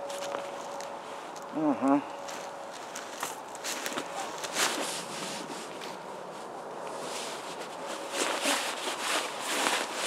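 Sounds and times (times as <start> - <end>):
jacket and backpack rustling: 2.2 - 10.0
shuffling in snow: 2.2 - 10.0.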